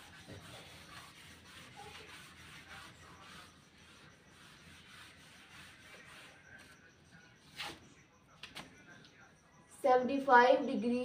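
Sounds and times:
eraser rubbing on whiteboard: 0:00.0 - 0:06.8.

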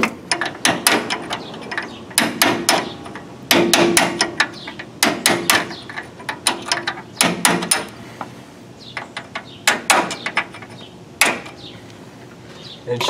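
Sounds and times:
hammer striking steel punch: 0:02.2 - 0:02.9, 0:03.5 - 0:05.8.

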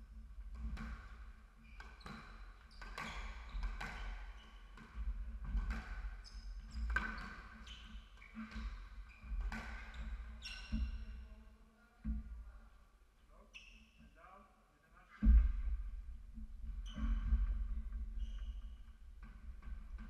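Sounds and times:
shoes squeaking on wooden floor: 0:06.1 - 0:11.4, 0:15.2 - 0:20.0.

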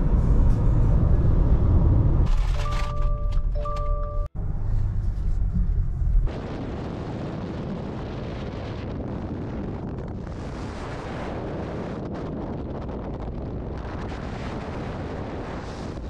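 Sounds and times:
road noise: 0:00.0 - 0:06.9
wind buffeting microphone: 0:05.4 - 0:16.0.

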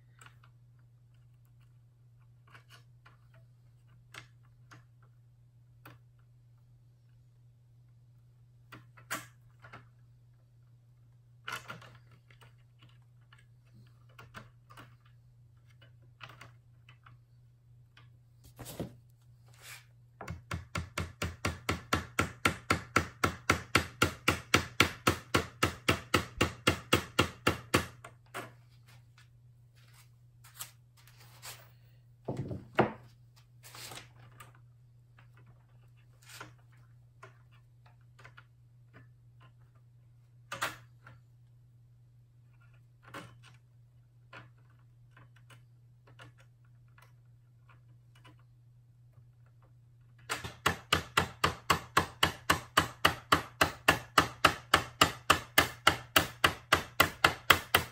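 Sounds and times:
small hammer tapping wood: 0:20.2 - 0:28.1, 0:50.3 - 0:57.9.

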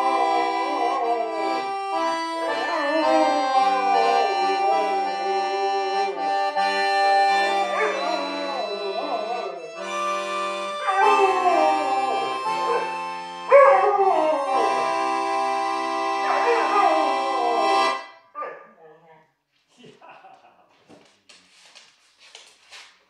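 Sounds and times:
dog howling: 0:00.0 - 0:01.6, 0:02.4 - 0:05.2, 0:07.6 - 0:09.9, 0:10.8 - 0:15.0, 0:16.2 - 0:18.9
accordion playing chords: 0:00.0 - 0:18.2.

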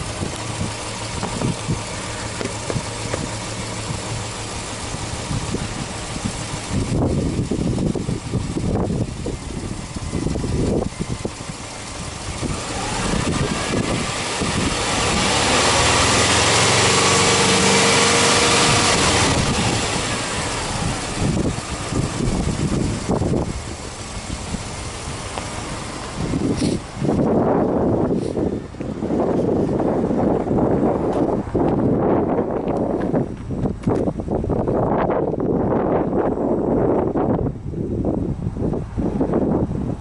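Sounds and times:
car engine revving: 0:00.0 - 0:31.7.

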